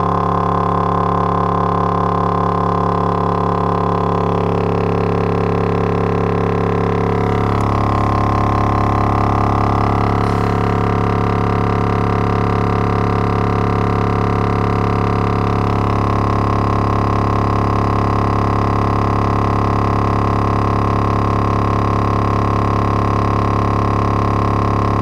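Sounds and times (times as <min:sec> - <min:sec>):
speaker droning buzz: 0:00.0 - 0:25.0.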